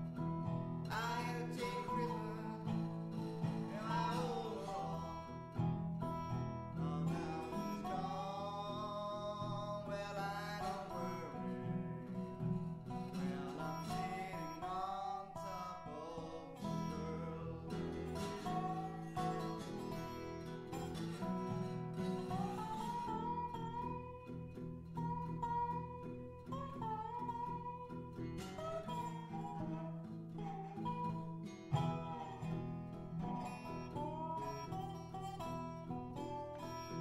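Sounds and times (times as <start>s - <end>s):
plucked guitar: 0.0s - 37.0s
sliding wavering melody: 1.3s - 24.2s.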